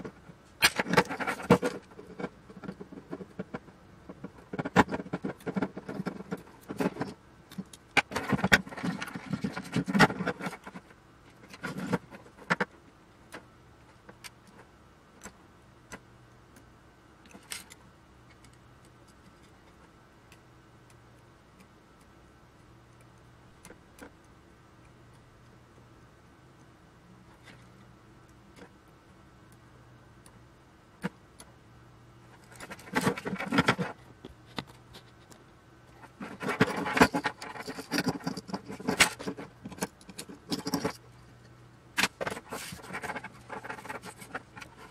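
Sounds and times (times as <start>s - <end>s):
rustling and scraping of wires: 0.0s - 20.5s, 27.1s - 28.9s, 32.2s - 44.9s.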